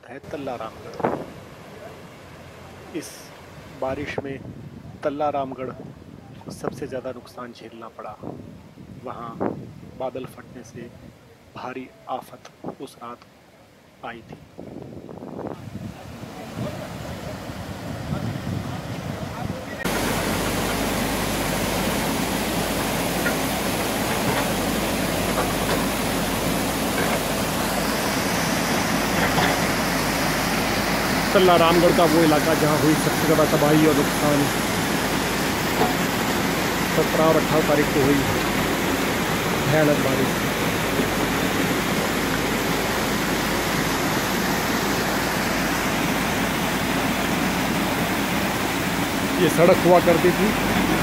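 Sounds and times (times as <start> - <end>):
stream rushing over rocks: 15.6 - 51.0.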